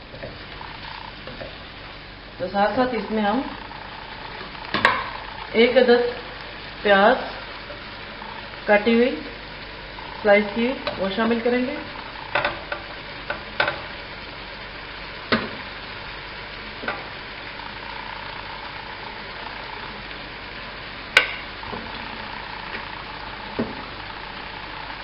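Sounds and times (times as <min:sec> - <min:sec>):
meat and onions sizzling: 0:00.0 - 0:25.0.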